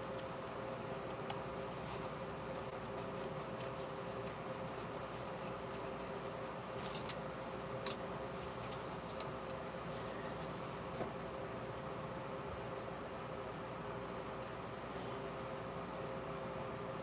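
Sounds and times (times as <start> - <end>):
scissors snipping paper: 0.0 - 7.2
room hum: 0.0 - 17.0.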